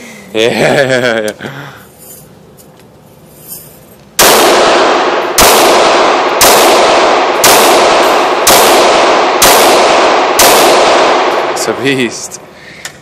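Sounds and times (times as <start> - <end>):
pistol shots echoing indoors: 4.2 - 12.4.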